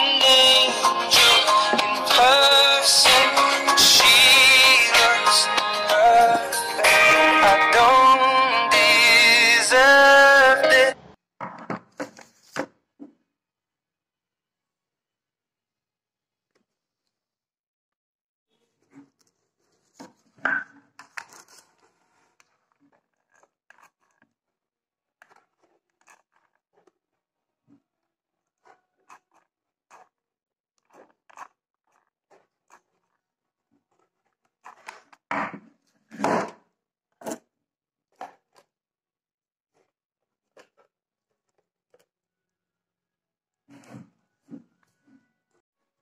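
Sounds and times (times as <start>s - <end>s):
cardboard crinkling and crunching: 21.0s - 24.4s, 25.1s - 30.2s.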